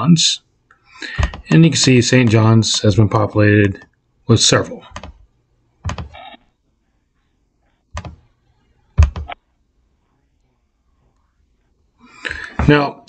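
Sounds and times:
computer mouse clicks: 0:01.1 - 0:01.5, 0:07.9 - 0:08.2.

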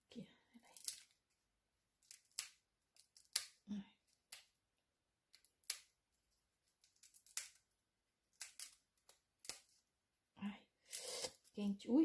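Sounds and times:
chestnut shell cracking: 0:00.7 - 0:01.2, 0:02.0 - 0:04.6, 0:05.3 - 0:06.0, 0:06.6 - 0:09.8.

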